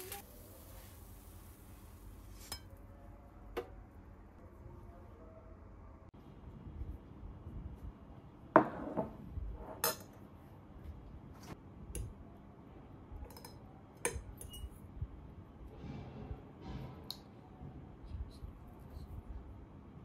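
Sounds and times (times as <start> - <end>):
plate knocking on wooden table: 8.6 - 9.2
metal fork clinking on plate: 13.3 - 14.8.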